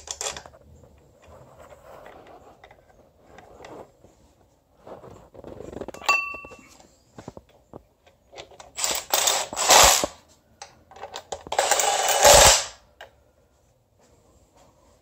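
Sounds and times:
metal clink: 0:06.0 - 0:06.8.

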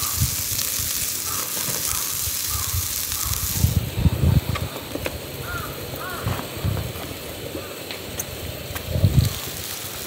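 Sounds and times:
food sizzling in a frying pan: 0:00.0 - 0:10.0.

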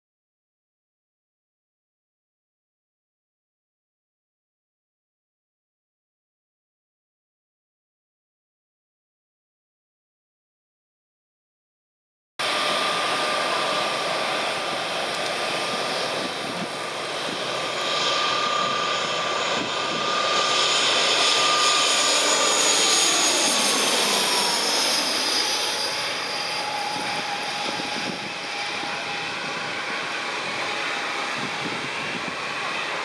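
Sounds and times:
turboprop airliner passing low: 0:12.4 - 0:33.0.

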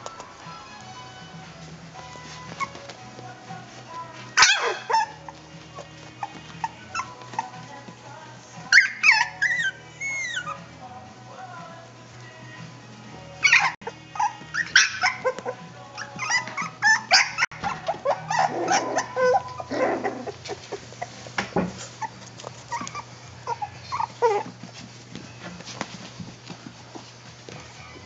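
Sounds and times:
puppies yelping and squealing: 0:02.2 - 0:03.0, 0:04.3 - 0:07.8, 0:08.7 - 0:10.8, 0:13.4 - 0:25.0.

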